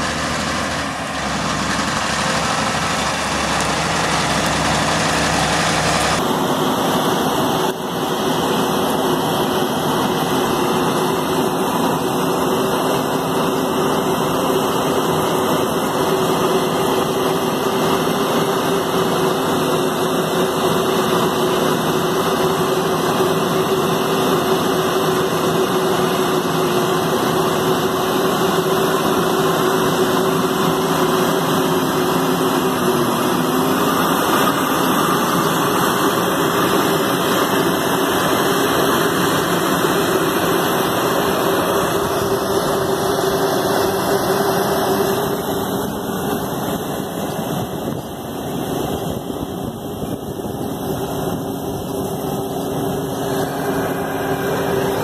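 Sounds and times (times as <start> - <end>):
tractor diesel engine under load: 0.0 - 55.0.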